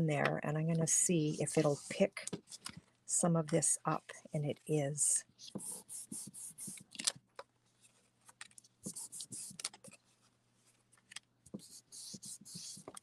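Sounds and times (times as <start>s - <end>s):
soft rubbing on craft mat: 1.2s - 2.1s, 11.6s - 13.0s.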